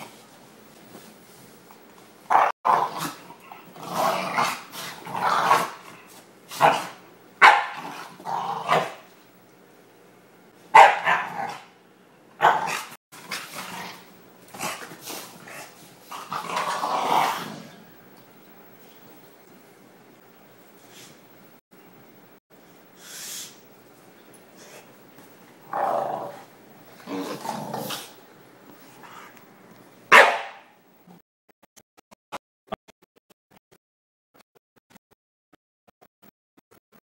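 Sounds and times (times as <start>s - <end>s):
dogs barking: 2.3s - 3.1s, 6.6s - 7.9s, 10.7s - 11.7s, 30.1s - 30.7s
dogs growling: 2.4s - 7.0s, 12.4s - 17.9s, 25.6s - 28.2s.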